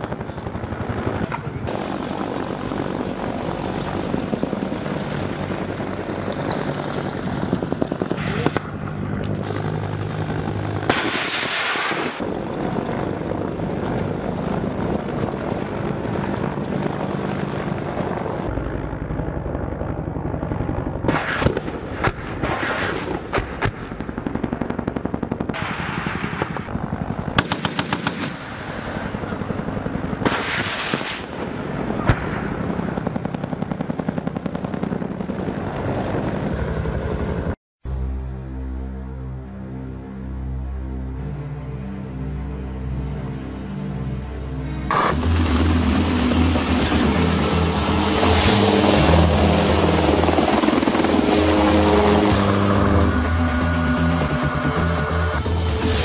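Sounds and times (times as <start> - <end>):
helicopter engine and rotor drone: 0.0 - 11.0, 12.2 - 21.1, 35.9 - 37.6, 44.2 - 56.0
rapid automatic gunfire: 27.4 - 28.5.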